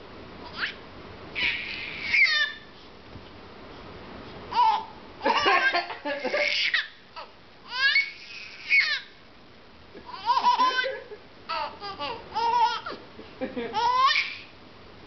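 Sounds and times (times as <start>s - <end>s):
infant laughing: 4.6s - 9.0s, 10.0s - 14.5s.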